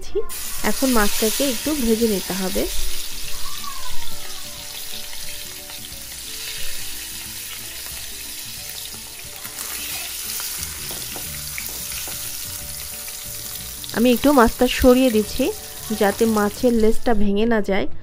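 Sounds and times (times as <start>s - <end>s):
fish sizzling in hot oil: 0.3s - 16.9s.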